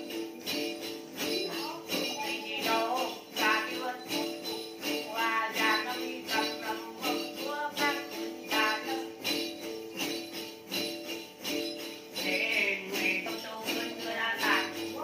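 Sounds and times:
jingle bells shaken: 0.0s - 15.0s
person singing: 1.2s - 9.6s, 12.2s - 15.0s.

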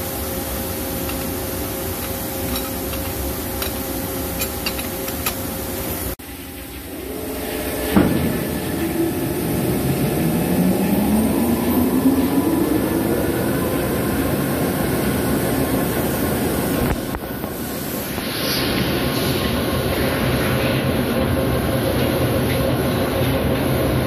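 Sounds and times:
lathe running with low rumble: 0.0s - 24.0s
drive whine rising in pitch: 6.4s - 18.3s.

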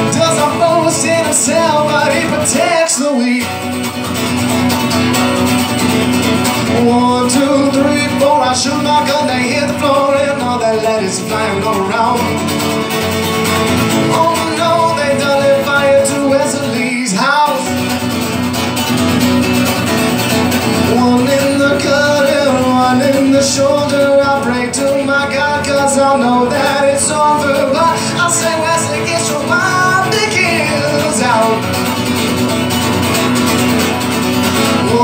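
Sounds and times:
man singing: 0.0s - 3.8s, 6.5s - 18.2s, 20.6s - 32.2s, 34.7s - 35.0s
acoustic guitar: 0.0s - 35.0s.

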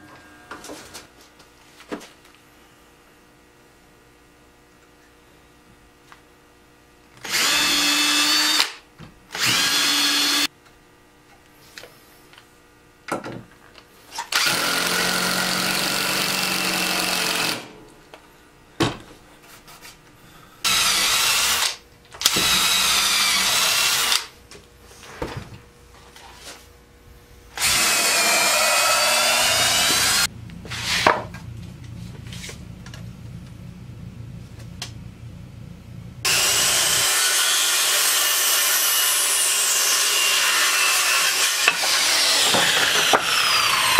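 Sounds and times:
cordless drill drilling into wood: 7.2s - 10.5s, 14.1s - 17.7s, 20.7s - 24.3s, 27.6s - 30.3s, 36.3s - 43.9s.

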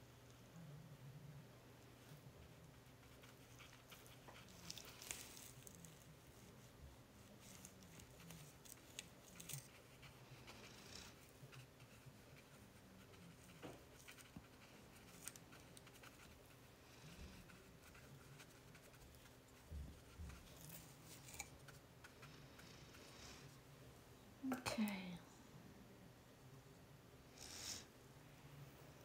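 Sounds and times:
paintbrush scratching on paper: 2.0s - 23.4s.

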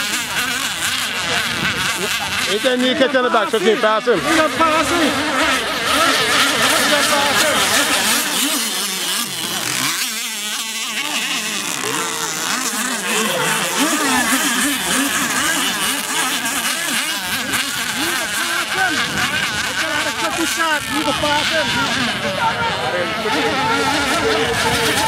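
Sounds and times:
model boat motors whining: 0.0s - 25.0s.

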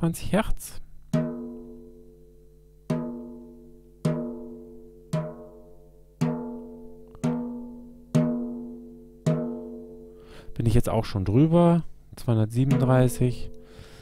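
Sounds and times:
drumstick tapping snare drum: 6.2s - 9.7s, 12.6s - 13.6s.

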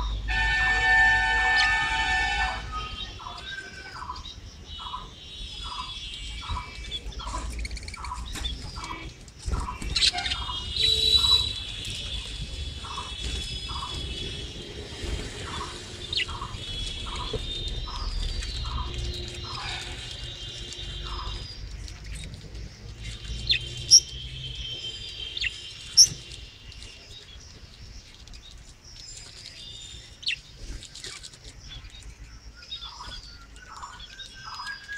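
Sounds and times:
budgerigars chattering and warbling: 0.9s - 34.9s
bird squawk: 4.8s - 12.2s, 12.8s - 14.5s, 15.4s - 21.6s.

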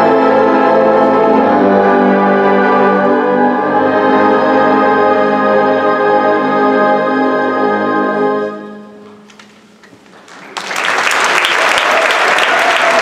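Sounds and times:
audience applause: 10.1s - 13.0s.

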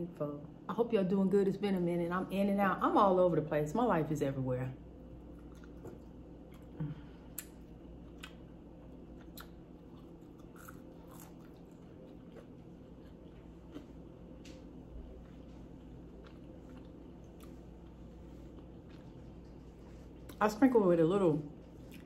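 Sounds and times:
person chewing crunchy food: 5.2s - 20.4s.

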